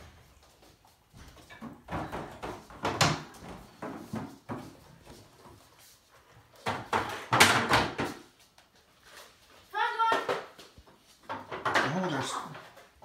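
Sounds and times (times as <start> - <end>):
toys and objects clattering: 11.2 - 13.0.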